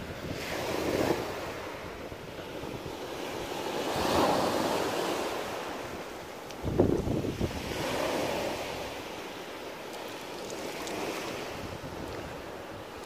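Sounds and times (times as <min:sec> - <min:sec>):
waves washing over pebbles: 0:00.0 - 0:13.0
wind rumbling on microphone: 0:00.0 - 0:13.0.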